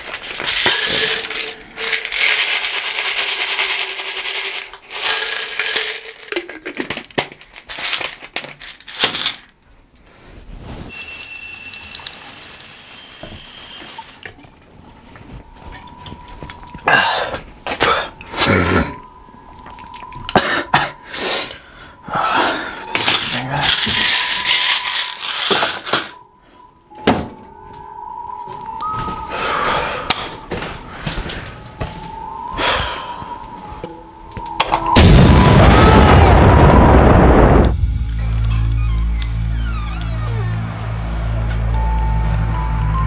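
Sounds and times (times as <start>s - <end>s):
plastic pill bottle rattling: 0.0s - 9.6s, 22.9s - 26.2s
steady mid-pitched tone: 26.1s - 35.6s.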